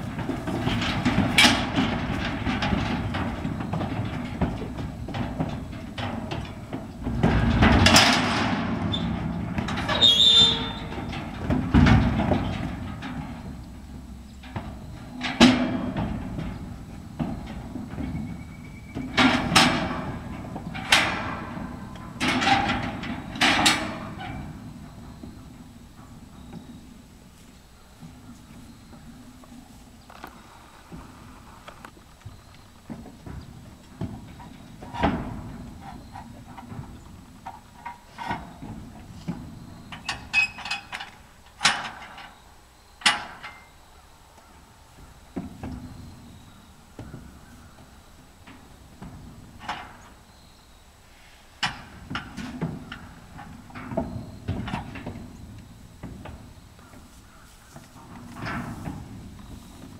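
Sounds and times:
metal gate knocking and rattling: 0.0 - 27.4, 32.9 - 42.4, 43.0 - 43.8, 51.6 - 59.9
steel trailer banging and ringing: 0.0 - 29.6, 32.9 - 42.4, 51.6 - 57.2.

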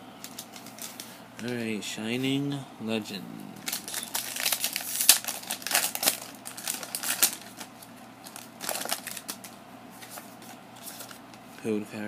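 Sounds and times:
foil wrapper crinkling and tearing: 0.2 - 1.2, 3.6 - 11.2.

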